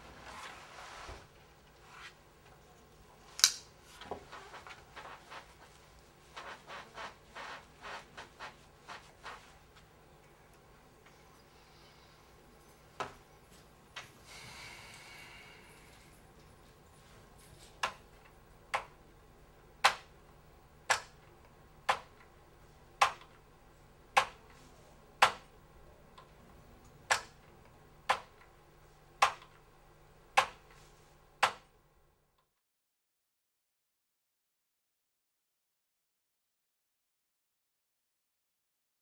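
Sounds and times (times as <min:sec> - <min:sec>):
short breathy sound: 0:14.2 - 0:16.1.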